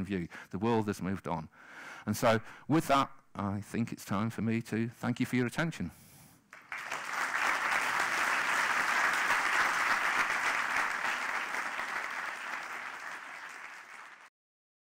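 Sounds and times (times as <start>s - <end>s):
audience applauding: 6.5s - 14.3s.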